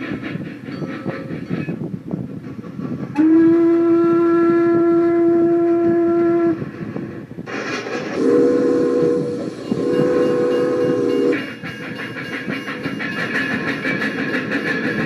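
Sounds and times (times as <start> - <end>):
toy train whistle: 3.2 - 6.6, 8.2 - 11.4
toy train chord horn: 8.2 - 11.4
toy train clattering on track: 9.6 - 15.0.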